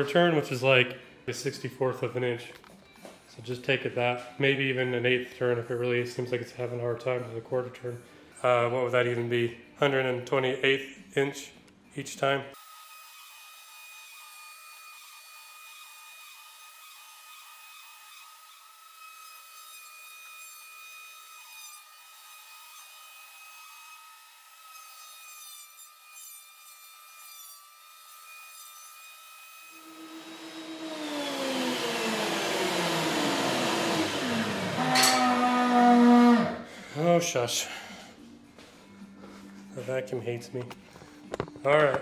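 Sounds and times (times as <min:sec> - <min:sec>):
thickness planer whining: 0:29.7 - 0:36.6.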